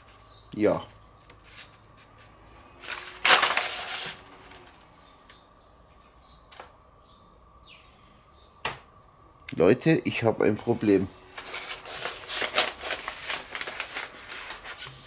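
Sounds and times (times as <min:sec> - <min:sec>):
paper rustling and crackling: 0:01.3 - 0:05.0, 0:11.3 - 0:15.0.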